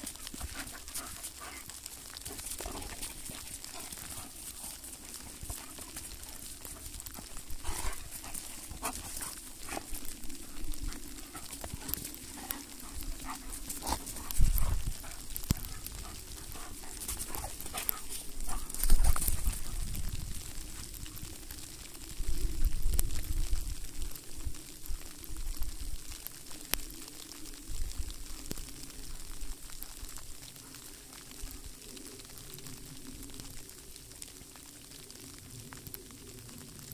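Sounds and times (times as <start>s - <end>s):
dogs scuffling and playing: 0.0s - 21.0s.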